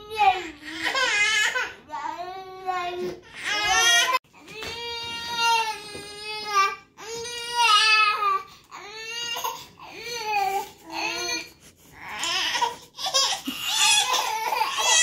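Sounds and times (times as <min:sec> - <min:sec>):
baby crying: 0:03.4 - 0:15.0.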